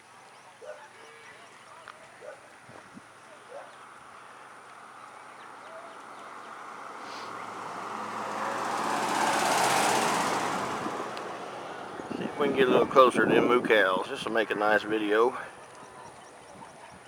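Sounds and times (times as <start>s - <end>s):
vehicle driving past: 5.5s - 13.0s.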